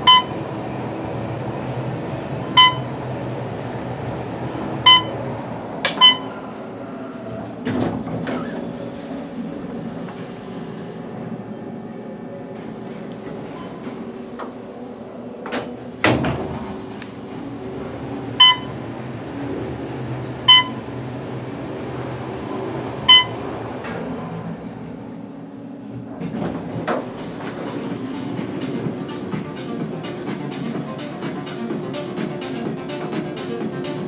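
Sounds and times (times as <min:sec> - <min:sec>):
elevator hum with high whine: 0:00.0 - 0:34.0
short electronic beeps: 0:00.1 - 0:00.4, 0:02.6 - 0:02.9, 0:04.8 - 0:05.2, 0:06.0 - 0:06.3, 0:18.4 - 0:18.7, 0:20.5 - 0:20.8, 0:23.1 - 0:23.4.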